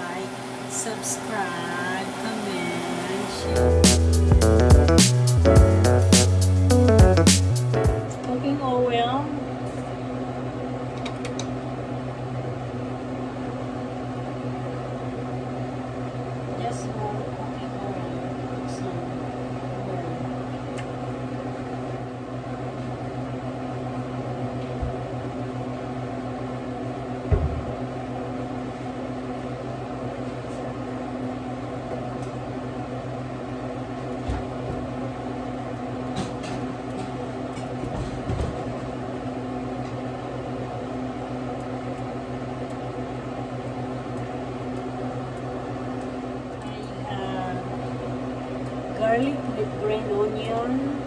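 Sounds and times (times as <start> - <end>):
electrical motor hum: 0.0 - 51.0.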